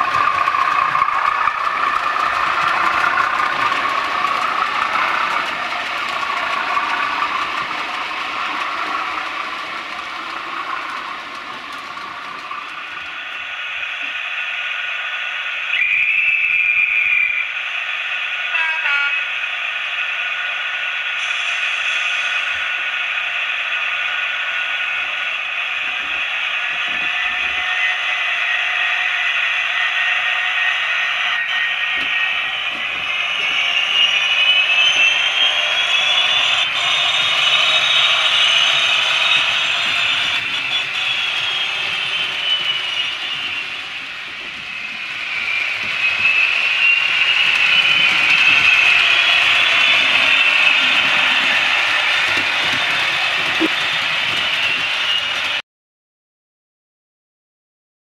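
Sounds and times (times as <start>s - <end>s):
wheels rattling on track: 0.0s - 13.6s, 24.9s - 28.4s, 31.3s - 55.6s
model locomotive engine drone: 0.0s - 55.6s.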